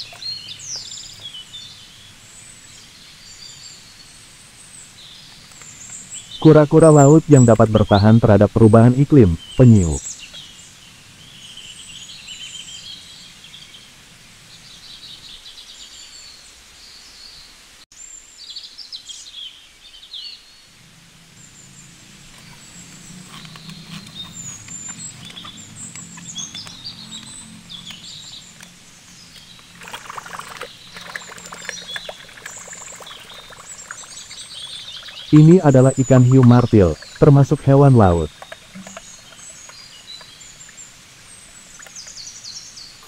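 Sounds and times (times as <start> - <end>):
birds chirping: 0.0 - 43.0
water splashing in a tub: 29.6 - 35.4, 36.4 - 37.3, 38.3 - 40.9.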